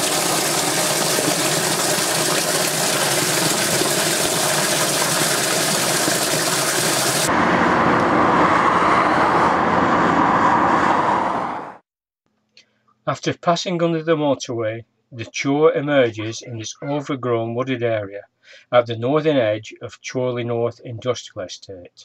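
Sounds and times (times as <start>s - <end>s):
water gushing from a pipe: 0.0s - 7.3s
motorway traffic noise: 7.1s - 11.8s.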